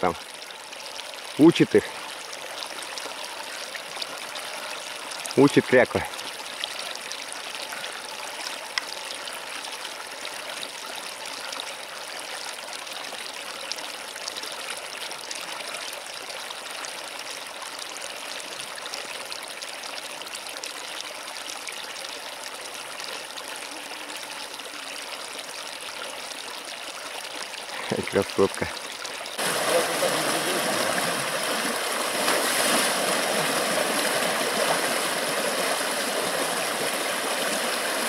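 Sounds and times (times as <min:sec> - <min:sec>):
river rushing over stones: 0:29.4 - 0:38.0.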